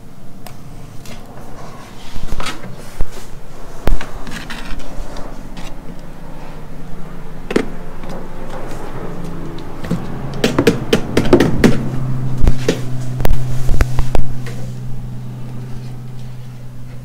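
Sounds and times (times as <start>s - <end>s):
steady low hum: 0.0s - 17.0s
sharp knocks: 9.8s - 13.4s.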